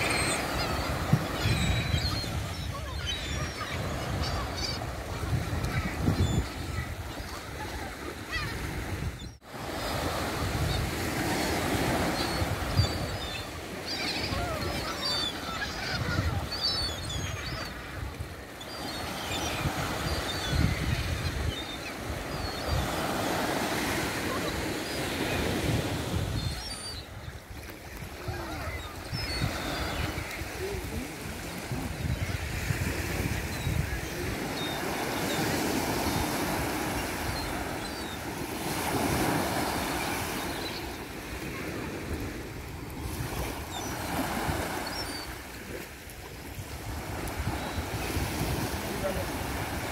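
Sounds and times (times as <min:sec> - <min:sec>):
gulls crying: 0:00.0 - 0:45.6
waves washing onto beach: 0:00.0 - 0:49.9.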